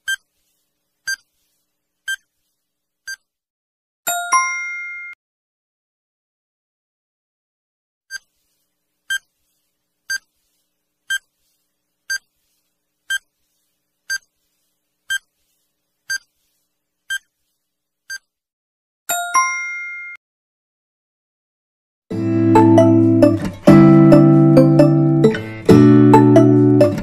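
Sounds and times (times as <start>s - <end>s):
multi-tone chime: 4.1s - 5.2s, 19.1s - 20.2s.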